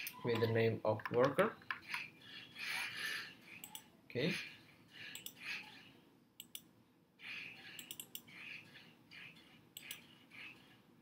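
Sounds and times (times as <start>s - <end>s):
mouse and keyboard clicks: 5.1s - 5.7s, 6.4s - 8.5s, 9.8s - 10.6s.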